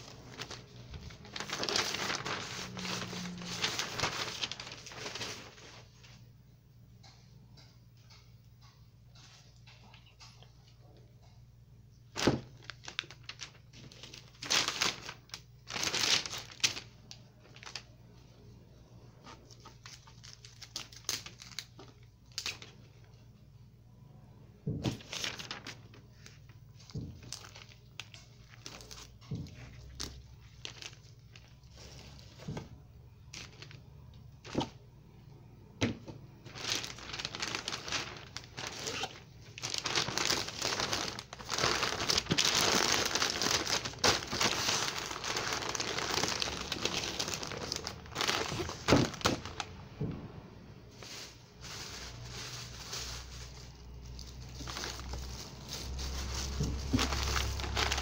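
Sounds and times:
newspaper rustling and crinkling: 0.0s - 6.2s, 12.1s - 18.0s, 19.2s - 22.8s, 24.7s - 33.8s, 36.4s - 50.0s, 50.9s - 58.0s.

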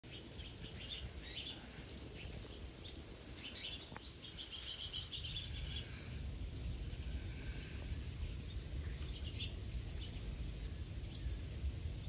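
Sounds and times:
songbirds chirping: 0.0s - 12.0s
low background rumble: 4.2s - 12.0s.

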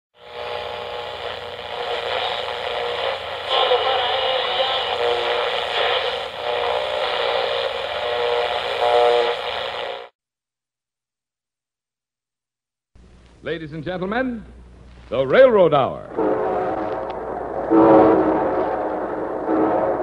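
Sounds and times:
radio hiss and hum: 0.2s - 10.1s, 13.1s - 20.0s
wavering radio tones: 0.2s - 10.1s, 16.1s - 20.0s.

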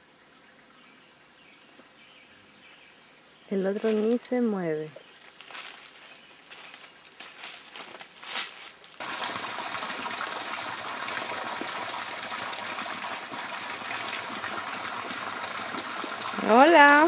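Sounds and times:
high insect tone: 0.0s - 9.0s
steady rushing water noise: 9.0s - 17.0s.

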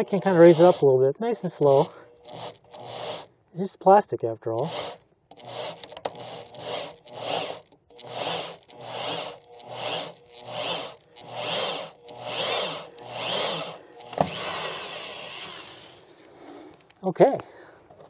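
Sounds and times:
hole saw cutting plastic: 0.0s - 0.9s, 1.6s - 3.3s, 4.5s - 16.1s.

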